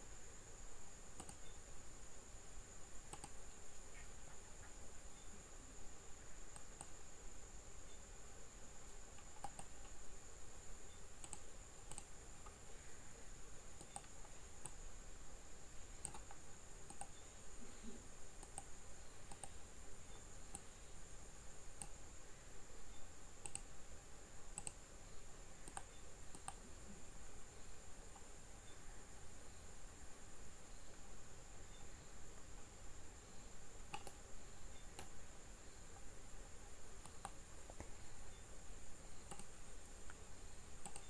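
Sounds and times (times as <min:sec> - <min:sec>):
faint high-pitched whine: 0:00.0 - 0:41.0
mouse and keyboard clicks: 0:01.2 - 0:01.6, 0:03.1 - 0:03.4, 0:06.5 - 0:07.0, 0:09.2 - 0:10.0, 0:11.2 - 0:12.6, 0:13.8 - 0:14.8, 0:16.0 - 0:17.2, 0:18.4 - 0:18.7, 0:19.3 - 0:19.6, 0:23.4 - 0:23.7, 0:24.6 - 0:24.8, 0:25.6 - 0:26.6, 0:33.9 - 0:34.2, 0:37.0 - 0:37.9, 0:39.2 - 0:40.2.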